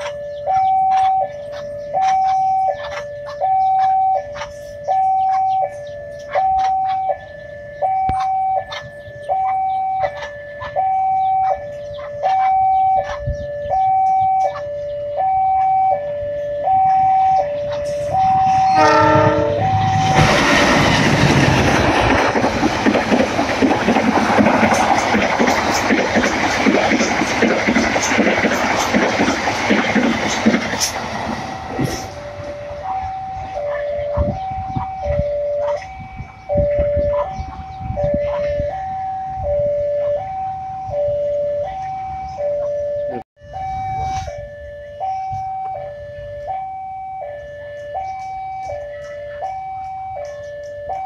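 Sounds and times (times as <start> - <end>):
train rumble and wheel clatter: 0.0 - 15.9, 16.6 - 40.9, 45.1 - 51.0
two-tone level crossing alarm: 0.0 - 51.0
train horn: 18.0 - 20.2
train wheels rolling and clattering: 19.6 - 34.4.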